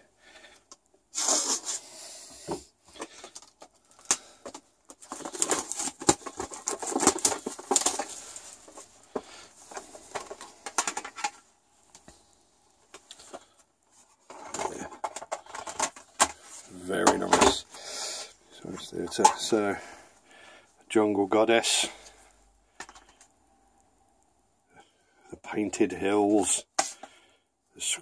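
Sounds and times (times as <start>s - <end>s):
plastic wrapping crinkling: 2.9s - 12.1s.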